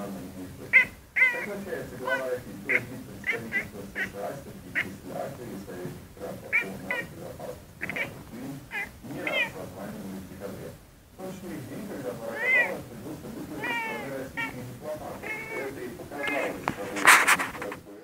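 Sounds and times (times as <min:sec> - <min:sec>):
cat meowing: 0:00.7 - 0:05.0, 0:06.5 - 0:07.2, 0:07.8 - 0:09.6, 0:12.2 - 0:12.9, 0:13.6 - 0:17.1.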